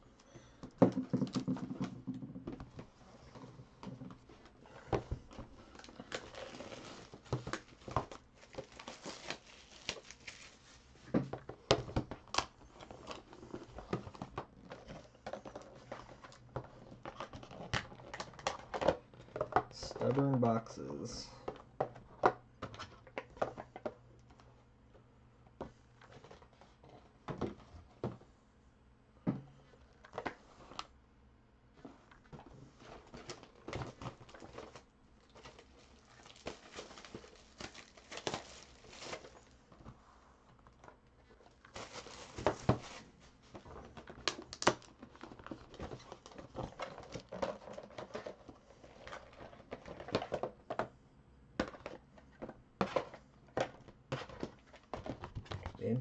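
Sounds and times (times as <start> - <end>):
cardboard rustling: 0.9 - 20.4, 31.8 - 50.9.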